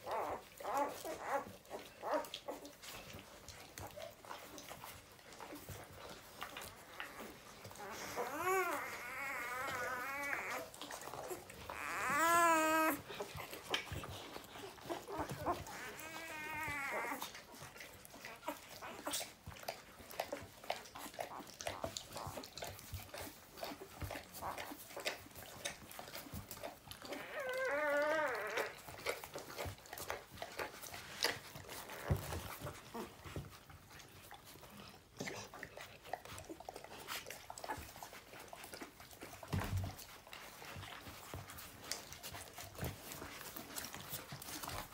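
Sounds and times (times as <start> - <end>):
puppies squealing and whimpering: 0.0 - 44.9.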